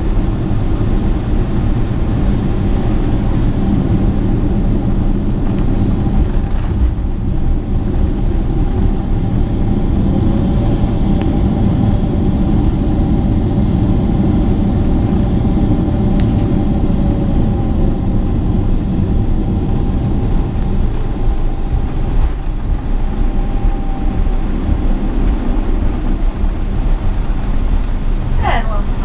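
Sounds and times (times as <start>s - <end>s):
faint engine whine: 0.0s - 29.0s
jet engines rumbling at idle: 0.0s - 29.0s.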